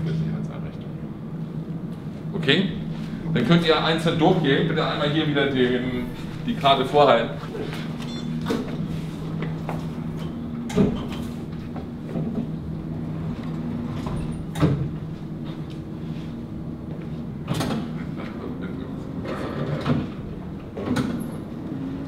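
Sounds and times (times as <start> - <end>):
steady low hum: 0.0 - 22.0
sliding glass doors opening and closing: 18.9 - 22.0.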